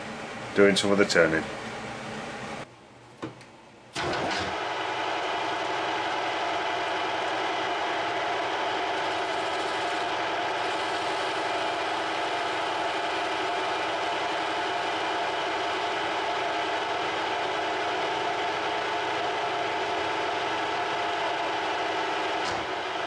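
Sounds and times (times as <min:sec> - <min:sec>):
metal lathe cutting steel: 0:04.0 - 0:23.0.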